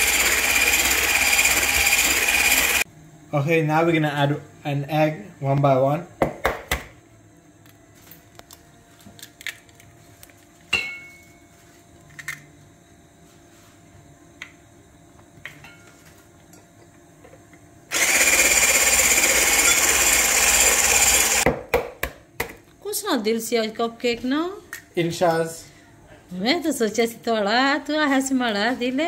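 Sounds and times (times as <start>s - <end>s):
electric hand mixer running: 0.0s - 2.8s, 17.9s - 21.5s.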